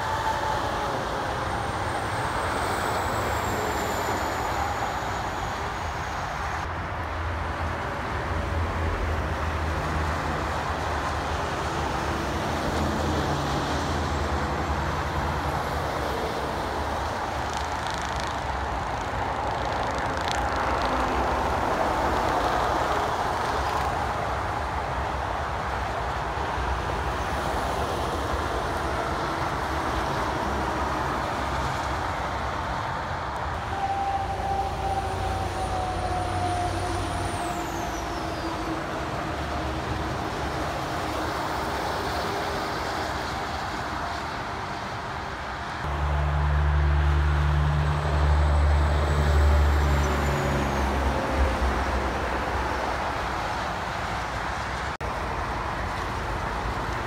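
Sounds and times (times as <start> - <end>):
vehicle whine sliding down: 0.0 - 6.7
highway traffic noise: 0.0 - 57.0
truck diesel engine drone: 0.0 - 57.0.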